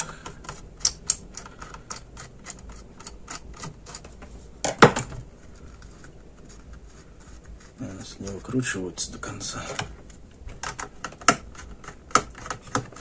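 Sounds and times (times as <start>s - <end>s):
clicks and taps of plastic and metal: 9.7s - 13.0s.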